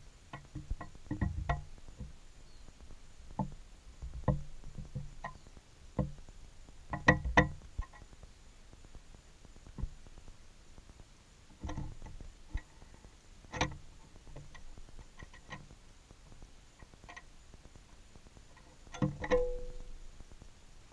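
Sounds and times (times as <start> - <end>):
light taps and knocks: 0.3 - 2.2, 3.3 - 6.3.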